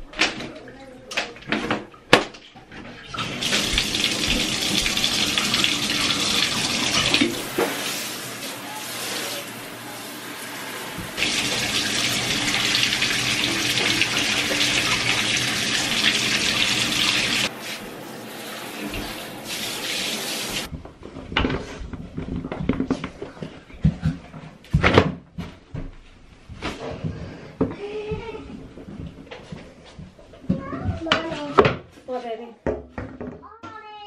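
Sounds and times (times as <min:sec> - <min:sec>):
shower head spraying into bathtub: 0:03.3 - 0:17.9
irregular knocks and rustles: 0:20.7 - 0:33.5.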